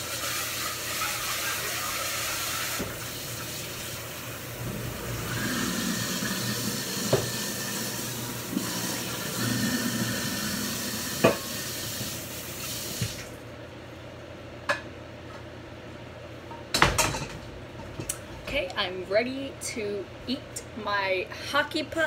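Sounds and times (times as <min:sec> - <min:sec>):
dishes clattering: 0:11.2 - 0:11.5, 0:16.5 - 0:18.1.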